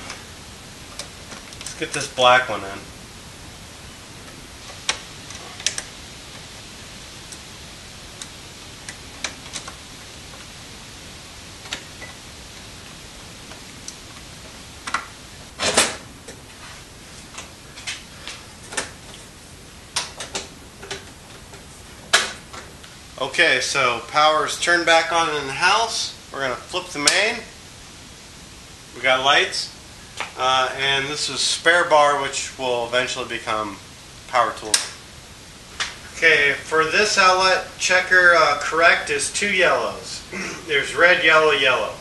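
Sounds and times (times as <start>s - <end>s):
steady hiss: 0.0s - 42.0s.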